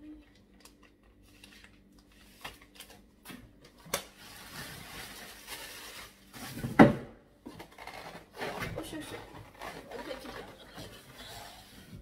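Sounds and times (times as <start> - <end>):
plastic packaging crinkling: 0.4 - 6.7, 7.6 - 10.6.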